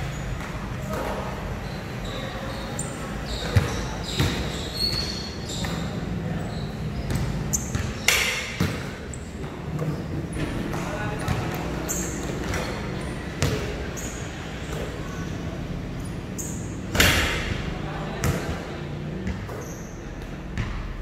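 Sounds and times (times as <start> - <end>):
basketball bouncing on concrete: 3.4 - 5.8, 7.1 - 11.6, 13.4 - 13.7, 19.2 - 19.6, 20.6 - 21.0.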